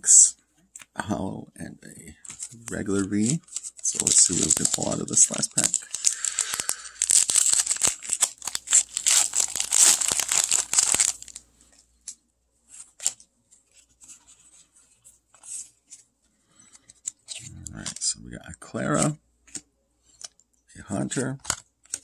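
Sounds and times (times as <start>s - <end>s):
cards being handled: 2.1s - 18.2s, 18.8s - 22.0s
foil wrapper tearing and crinkling: 2.4s - 11.4s.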